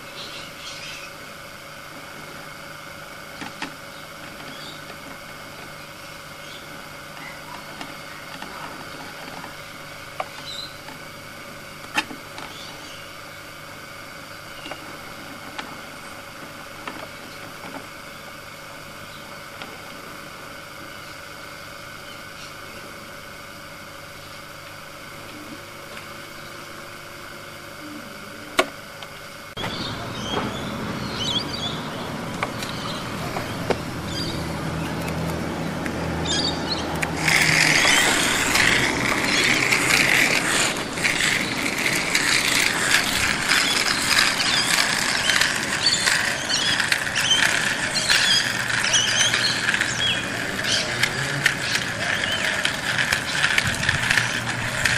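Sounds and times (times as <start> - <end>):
faint hum: 0.0 - 54.9
toy motor whirring: 3.3 - 11.2, 11.8 - 13.1, 29.5 - 54.9
squeaks and ratchety clicks: 36.2 - 54.9.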